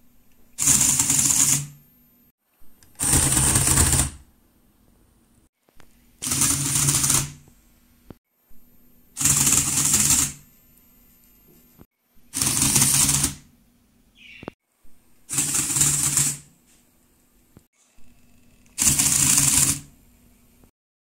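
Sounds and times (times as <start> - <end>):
faint steady hum: 1.8 - 3.0, 4.2 - 6.2, 7.4 - 9.2, 10.4 - 12.3, 19.9 - 20.7.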